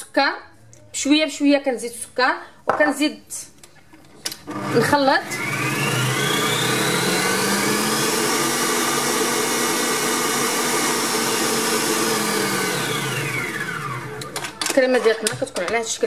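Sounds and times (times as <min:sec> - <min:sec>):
electric mixer whipping cream: 0:04.5 - 0:14.6.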